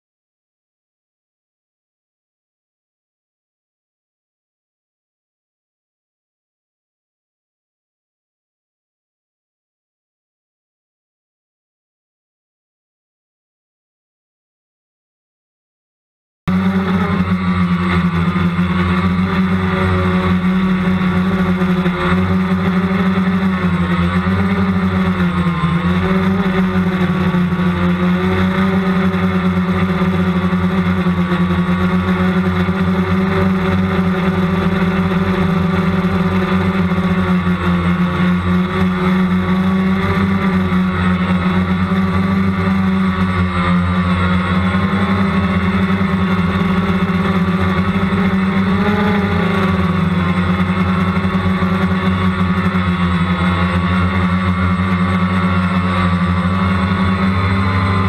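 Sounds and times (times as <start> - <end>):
small two-stroke engine running: 16.5 - 58.0.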